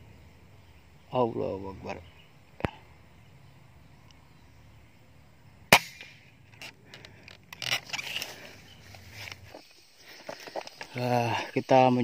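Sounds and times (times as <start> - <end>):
air rifle shot crack: 5.7 - 6.4.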